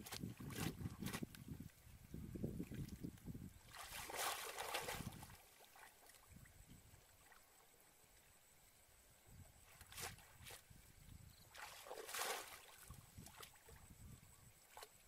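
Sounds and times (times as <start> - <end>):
pond water sloshing and splashing: 0.0 - 15.0
loud water splash: 11.6 - 12.8.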